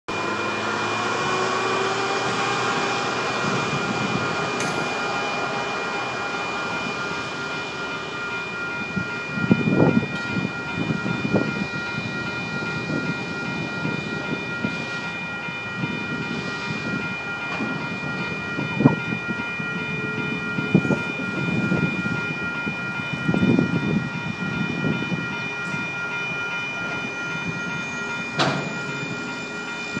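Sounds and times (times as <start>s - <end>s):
railcar mover engine running: 0.1s - 30.0s
railroad crossing bell ringing: 0.1s - 30.0s
wheels clanking over rail joints: 28.0s - 29.3s.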